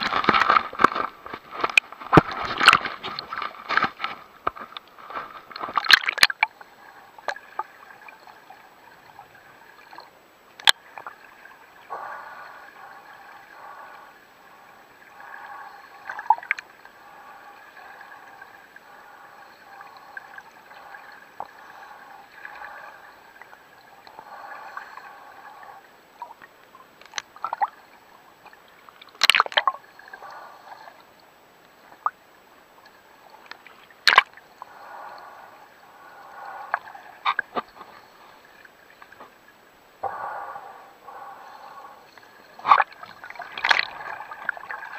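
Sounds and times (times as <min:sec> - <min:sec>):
water splash: 0:00.0 - 0:06.5, 0:33.7 - 0:34.4, 0:42.5 - 0:44.9
underwater bubbles gurgling: 0:05.5 - 0:44.9.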